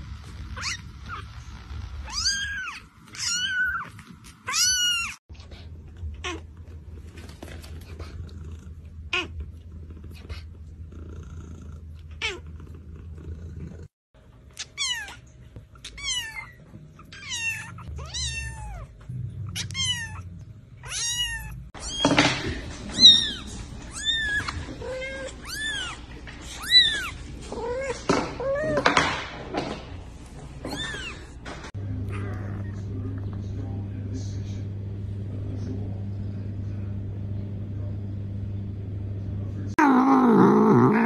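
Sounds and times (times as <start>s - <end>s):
kitten mewing: 0.6s - 1.2s, 2.0s - 3.9s, 22.9s - 26.0s.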